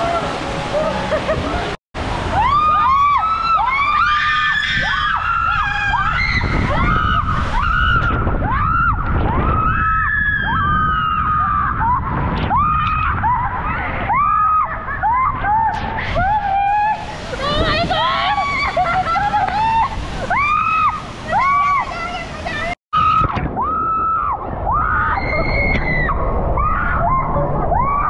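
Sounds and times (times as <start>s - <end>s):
women screaming and whooping: 0.0s - 28.0s
water rushing under inner tube: 15.5s - 27.2s.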